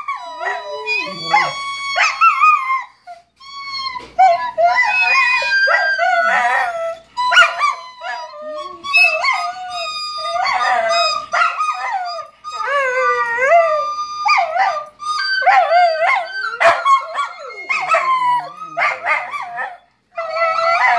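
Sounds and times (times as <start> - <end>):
recorder playing held notes: 0.0 - 2.7, 3.4 - 18.8
dogs howling: 0.0 - 3.0, 3.7 - 20.9
dogs barking and yipping: 0.0 - 3.2, 3.8 - 20.9.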